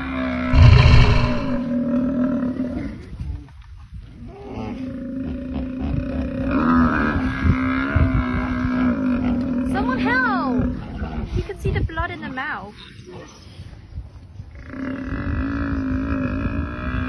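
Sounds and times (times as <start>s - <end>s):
low animal call: 0.0s - 2.0s.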